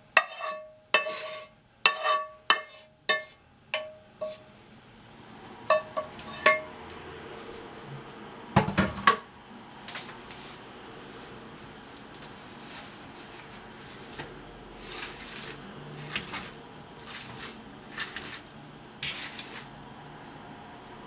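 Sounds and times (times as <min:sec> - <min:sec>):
metal pan knocking on pot rim: 0:05.7 - 0:06.7.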